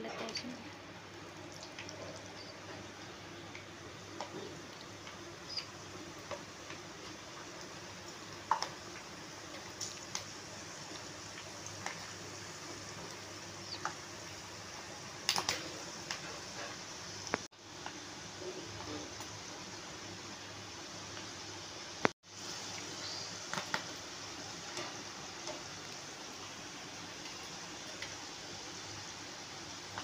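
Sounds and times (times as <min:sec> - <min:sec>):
hot oil sizzling: 0:00.1 - 0:30.0
oil popping and crackling: 0:01.1 - 0:18.0, 0:22.0 - 0:29.0.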